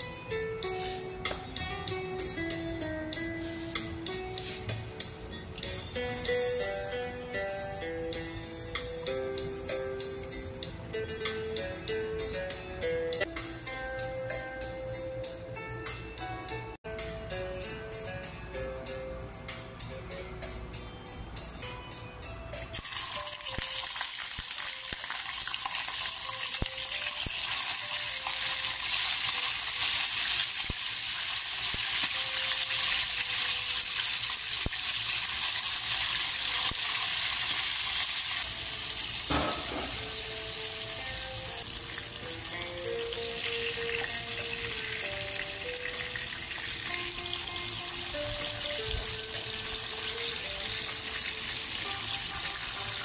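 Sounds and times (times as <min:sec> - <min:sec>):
fish sizzling in hot oil: 0:22.8 - 0:53.0.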